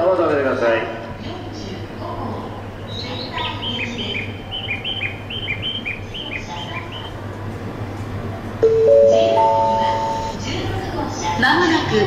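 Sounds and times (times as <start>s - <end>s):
two-note chirps: 8.6s - 10.4s.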